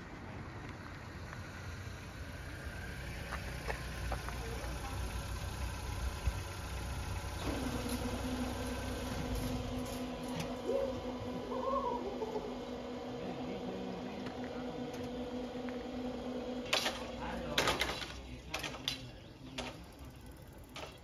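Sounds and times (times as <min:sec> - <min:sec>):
barrier motor electric hum: 0:00.0 - 0:21.0.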